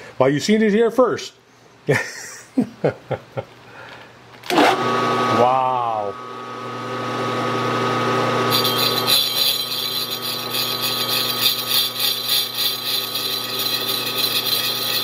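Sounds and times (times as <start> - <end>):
milling machine motor hum: 6.1 - 15.0
cutter rasping into brass: 8.5 - 15.0.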